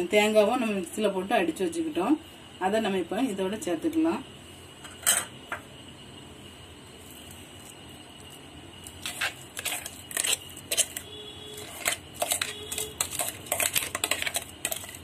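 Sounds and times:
spoon scraping and tapping jar: 9.0 - 11.0, 11.6 - 15.0.

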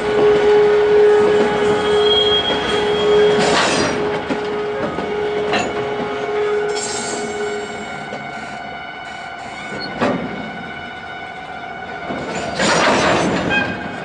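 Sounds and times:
train wheels squealing on rail: 1.2 - 4.2, 6.6 - 10.2, 12.1 - 14.0.

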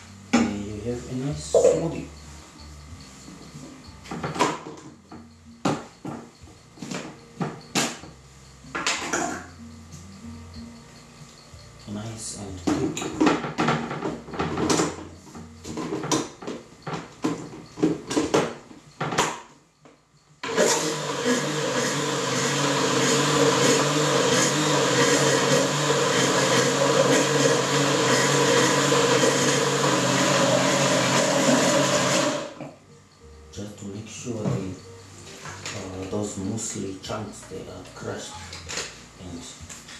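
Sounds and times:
electric blender running: 20.4 - 32.6.

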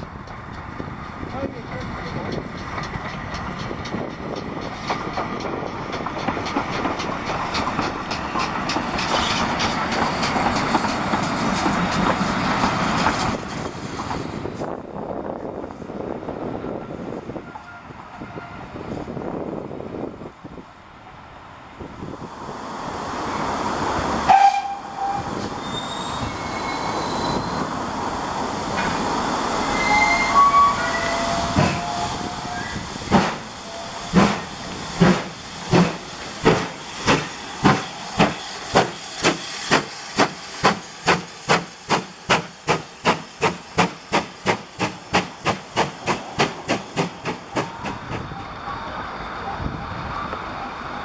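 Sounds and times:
steam hissing: 2.4 - 14.4, 22.2 - 48.3
steam locomotive whistle: 24.3 - 27.6, 29.7 - 32.8, 33.6 - 34.4
steam locomotive exhaust beats: 30.7 - 48.5.

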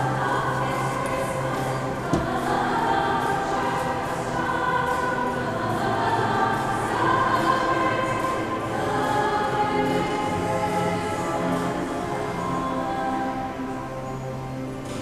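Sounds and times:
girls' choir singing: 0.0 - 13.7
knock: 2.1 - 2.4.

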